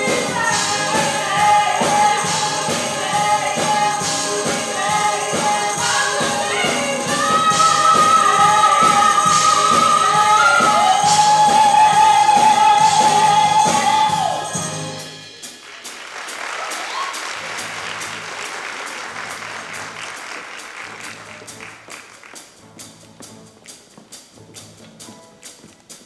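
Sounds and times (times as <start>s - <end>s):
woman singing: 0.0s - 14.8s
band playing: 0.0s - 26.0s
audience applause: 15.4s - 22.6s.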